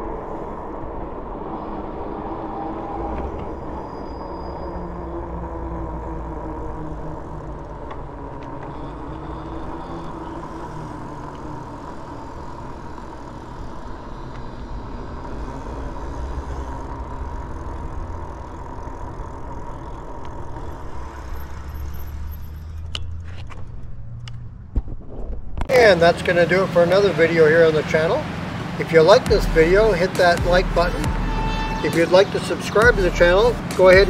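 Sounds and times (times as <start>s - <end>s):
tyres rolling on asphalt: 0.0s - 24.7s, 25.6s - 34.0s
electric motor whine: 2.5s - 22.0s.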